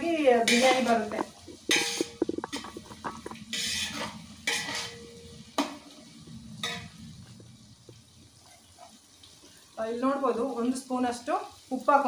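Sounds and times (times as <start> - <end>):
onions frying in oil: 0.0 - 12.0
spoon scraping a pot: 0.4 - 5.8.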